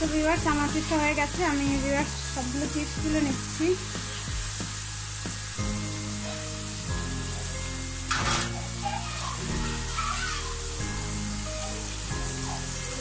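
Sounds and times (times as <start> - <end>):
potatoes sizzling in oil: 0.0 - 13.0
spatula scraping: 8.1 - 10.4.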